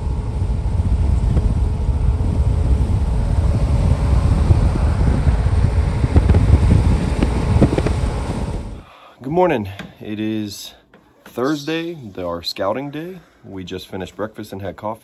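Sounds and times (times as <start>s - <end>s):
wind buffeting microphone: 0.0s - 8.8s.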